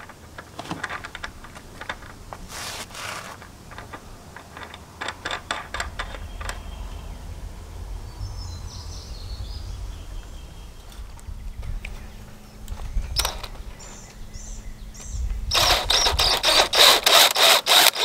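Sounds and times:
low outdoor rumble: 0:00.0 - 0:17.5
lock nut clicking on thread: 0:03.4 - 0:06.6.

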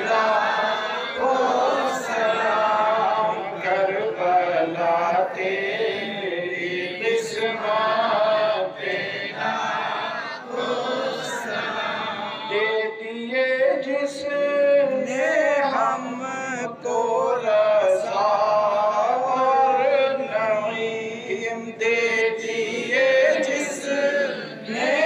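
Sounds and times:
man chanting: 0:00.9 - 0:08.8, 0:12.0 - 0:25.0.

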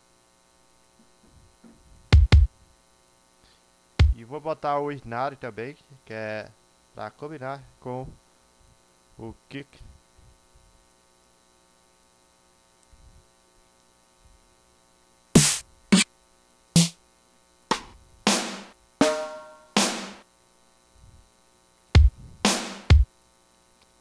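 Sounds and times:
snare drum hits: 0:15.4 - 0:16.1, 0:16.8 - 0:17.0, 0:17.7 - 0:20.2, 0:22.5 - 0:23.0.

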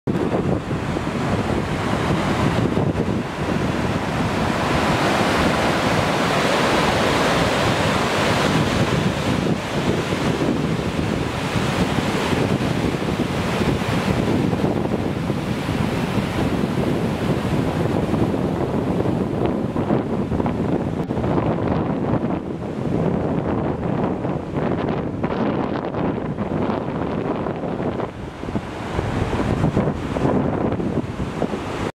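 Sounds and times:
water rushing over rocks: 0:00.1 - 0:22.5.

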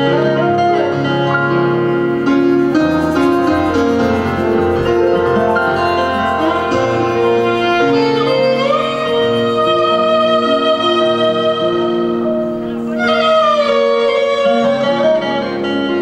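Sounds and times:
harmonium chords: 0:02.0 - 0:12.6
violin melody: 0:02.2 - 0:15.7.

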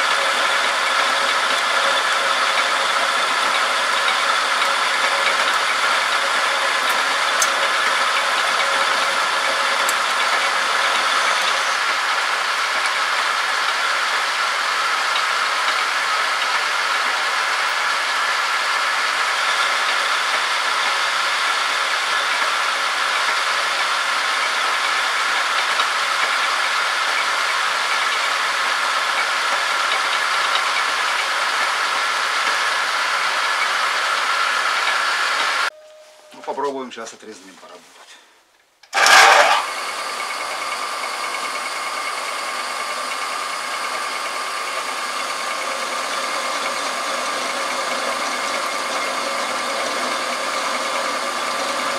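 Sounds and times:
metal lathe running: 0:00.0 - 0:35.7, 0:38.9 - 0:51.9.

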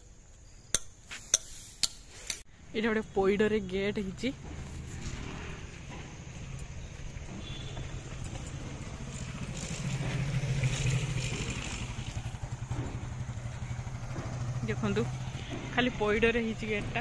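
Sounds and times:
motorcycle engine passing: 0:04.3 - 0:17.0.

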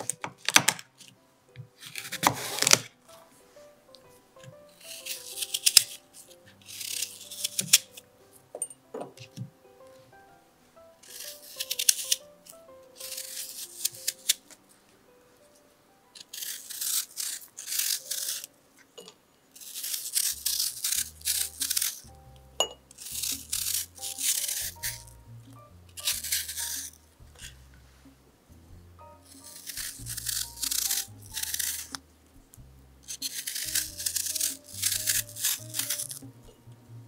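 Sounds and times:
soft background music: 0:00.0 - 0:37.0
knife scraping apple skin: 0:01.8 - 0:02.9, 0:04.4 - 0:08.0, 0:11.0 - 0:14.6, 0:16.2 - 0:18.5, 0:19.5 - 0:27.6, 0:29.2 - 0:36.4.

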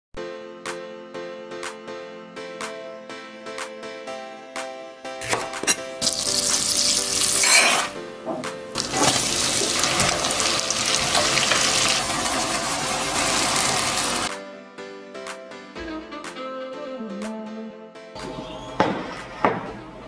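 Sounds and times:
food sizzling in oil: 0:05.6 - 0:08.0, 0:08.8 - 0:14.3.

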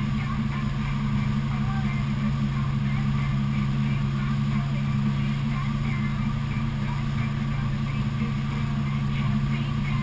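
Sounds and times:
boat engine droning: 0:00.0 - 0:10.0.

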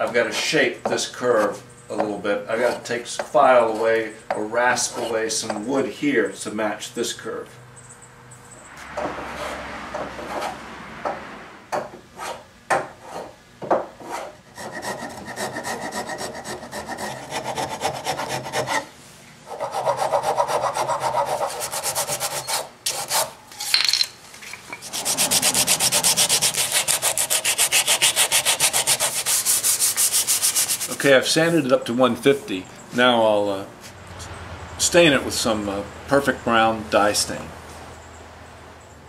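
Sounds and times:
file scraping wood: 0:02.5 - 0:03.0, 0:04.7 - 0:05.3, 0:09.3 - 0:10.6, 0:12.1 - 0:13.4, 0:14.0 - 0:18.9, 0:19.5 - 0:23.4, 0:24.8 - 0:31.0
hand sanding wood: 0:14.0 - 0:18.9, 0:19.5 - 0:23.4, 0:24.8 - 0:31.6.

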